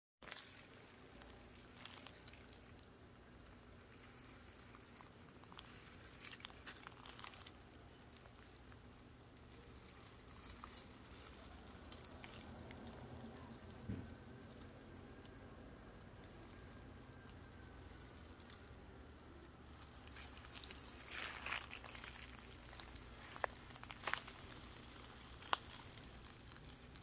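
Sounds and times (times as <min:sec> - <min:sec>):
dry leaf litter crackling: 0:00.2 - 0:27.0.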